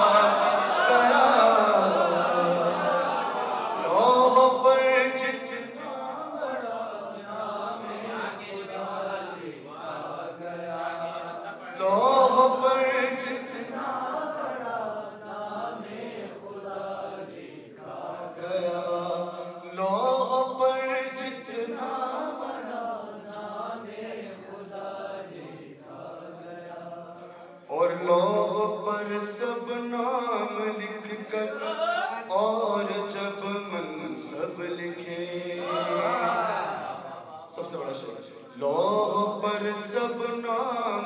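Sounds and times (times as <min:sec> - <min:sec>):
man chanting unaccompanied: 0:27.7 - 0:36.2.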